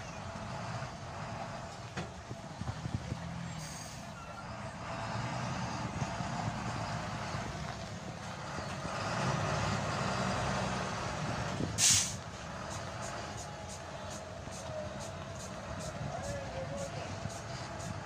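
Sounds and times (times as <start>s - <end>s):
diesel engine idling: 0.0s - 18.0s
air brake hiss: 3.6s - 4.1s, 11.8s - 12.2s.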